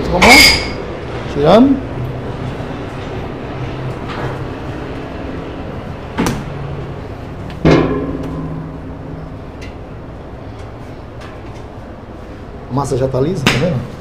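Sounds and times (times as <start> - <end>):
steady machine hum: 0.0 - 14.0
metallic knocks from dough mixer: 7.6 - 9.0.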